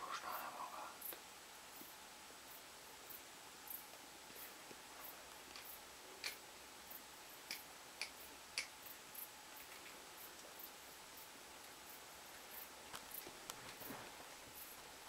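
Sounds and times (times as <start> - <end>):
background hiss: 0.0 - 15.0
sharp clicks and ticks: 5.5 - 6.4.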